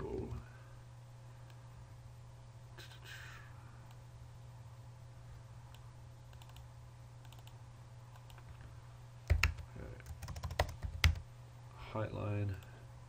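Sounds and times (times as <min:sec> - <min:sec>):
low steady hum: 0:00.0 - 0:13.0
keyboard keystrokes clacking: 0:09.3 - 0:11.2.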